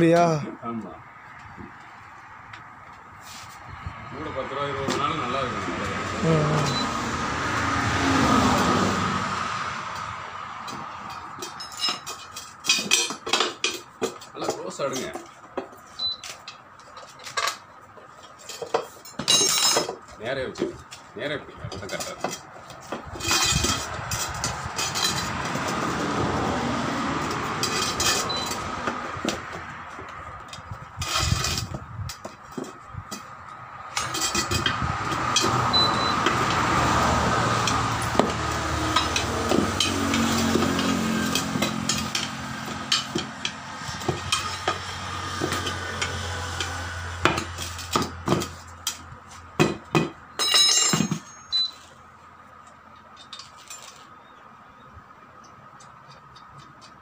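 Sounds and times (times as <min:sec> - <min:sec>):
metal tyre lever clanking on rim: 0:49.6 - 0:51.8.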